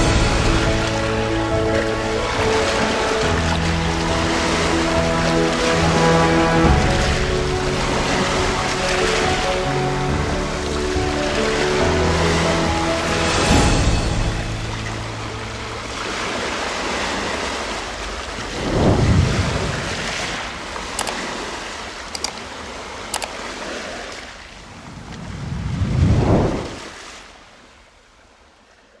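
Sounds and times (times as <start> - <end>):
sea waves washing on shore: 0.0 - 29.0
short clicks: 21.0 - 21.3, 22.1 - 22.4, 23.1 - 23.4.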